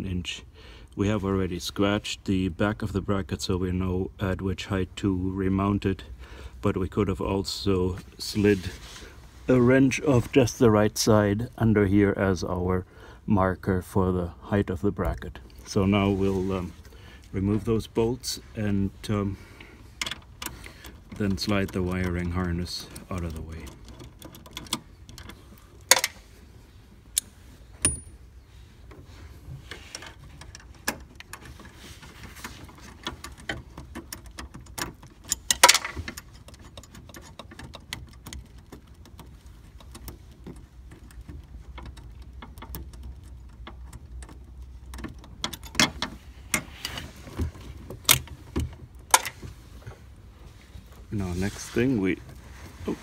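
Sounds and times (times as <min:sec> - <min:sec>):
low steady hum: 0:00.0 - 0:53.0
clicks and rattles of hardware: 0:19.5 - 0:26.3, 0:29.6 - 0:50.1.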